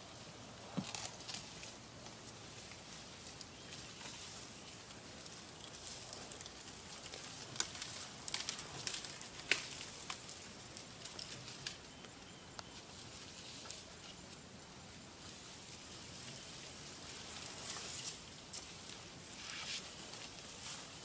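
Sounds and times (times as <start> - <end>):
twigs and branches snapping: 5.2 - 11.8.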